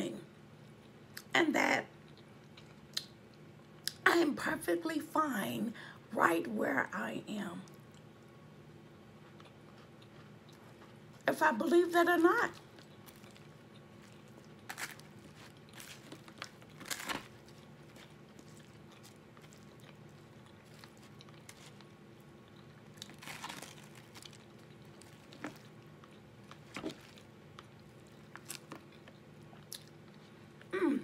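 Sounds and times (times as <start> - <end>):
faint steady hum: 0.0 - 31.0
person chewing: 2.0 - 4.0, 9.1 - 11.2, 12.6 - 30.7
fork crunching pastry crust: 12.6 - 30.2.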